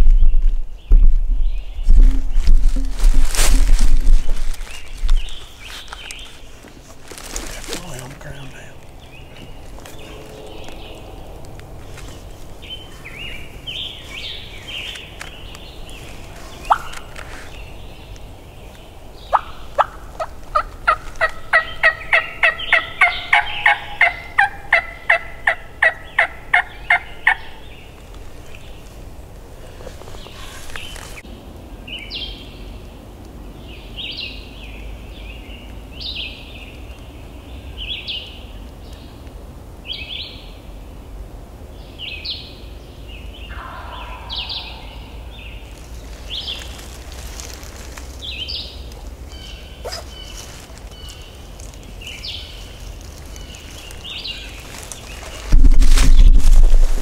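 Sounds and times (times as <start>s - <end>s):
turkey yelps: 16.6s - 16.9s, 43.5s - 45.3s, 49.8s - 50.2s
small bird chirping high notes: 43.5s - 45.7s.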